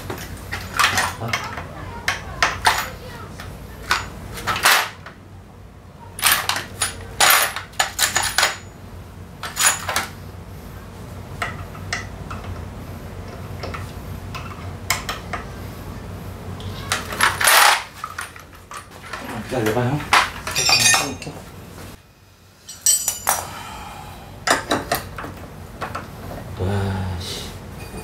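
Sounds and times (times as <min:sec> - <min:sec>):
metal sockets clattering: 0:00.0 - 0:05.1, 0:06.2 - 0:08.7, 0:09.4 - 0:10.2, 0:16.8 - 0:21.4.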